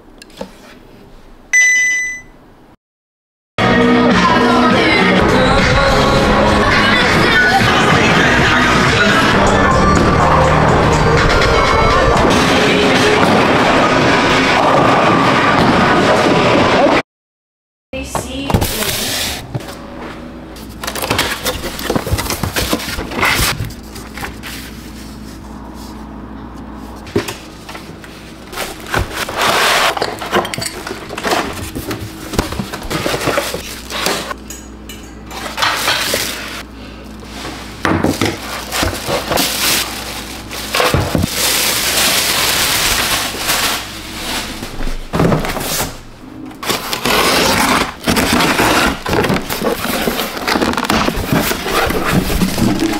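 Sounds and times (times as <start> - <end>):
cardboard and plastic packaging rustling: 20.6 - 25.4, 27.0 - 34.4, 35.5 - 52.9.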